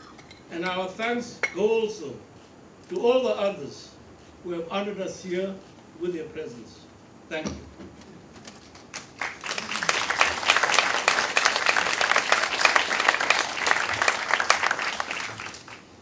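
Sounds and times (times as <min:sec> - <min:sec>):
audience applauding: 0:08.4 - 0:16.0.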